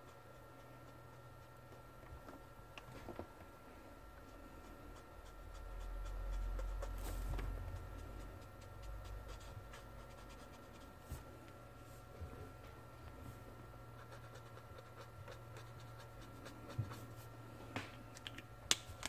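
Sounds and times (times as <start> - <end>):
marker scratching on paper: 4.3 - 10.9, 14.0 - 17.2.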